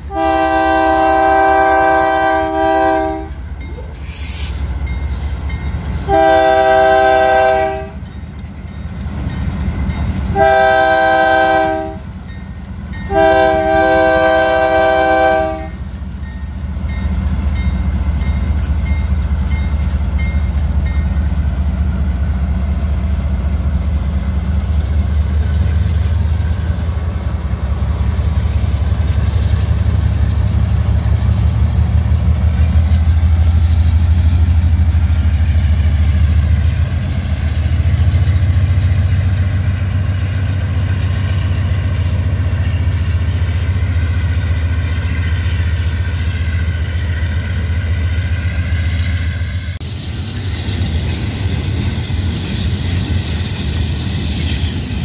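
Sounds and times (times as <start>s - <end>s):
locomotive horn blast: 0.0s - 3.4s, 6.0s - 8.0s, 10.3s - 12.1s, 13.1s - 15.8s.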